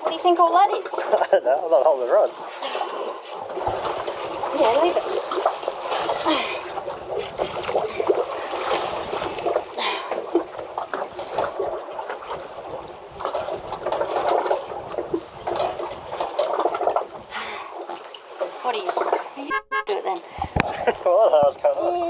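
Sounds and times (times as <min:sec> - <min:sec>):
water slapping against boat hull: 0:03.2 - 0:17.3.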